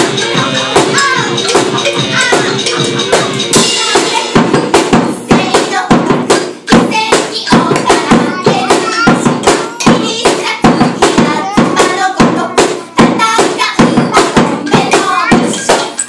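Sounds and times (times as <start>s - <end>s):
drum kit playing fast rhythm: 0.0s - 16.0s
cymbal crash: 3.5s - 5.2s.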